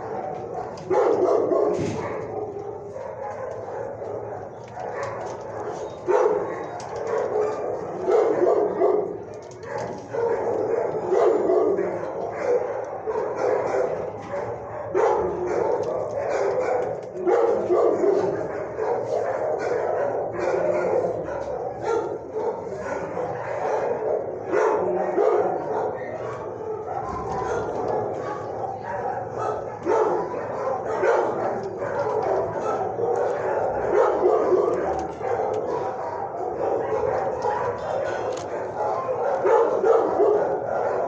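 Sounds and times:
dogs barking: 0.0 - 41.0.

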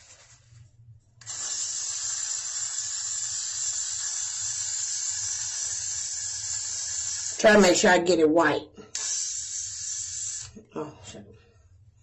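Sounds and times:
hair spray can hissing: 1.2 - 7.8, 8.9 - 10.7.

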